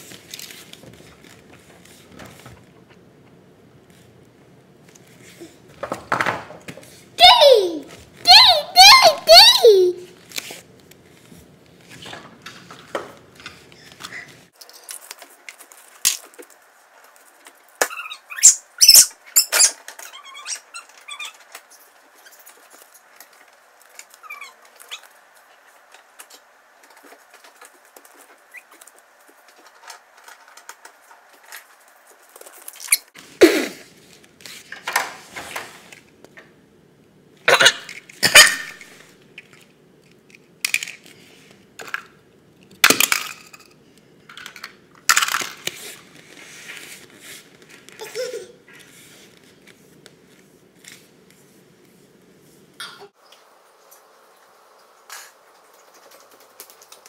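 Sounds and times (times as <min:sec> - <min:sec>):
toddler squeaking: 0:07.2 - 0:10.0.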